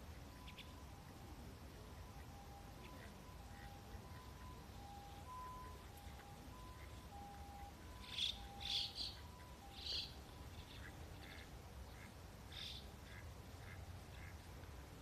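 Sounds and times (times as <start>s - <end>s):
high-pitched bird chirps: 2.8s - 10.9s.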